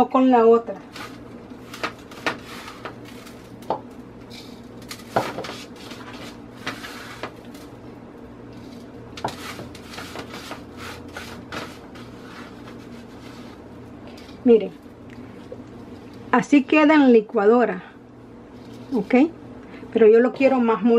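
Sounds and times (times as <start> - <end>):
steady low hum: 0.0 - 20.9
seasoning scraped across metal tray: 0.9 - 3.6, 4.2 - 7.6, 8.5 - 14.4.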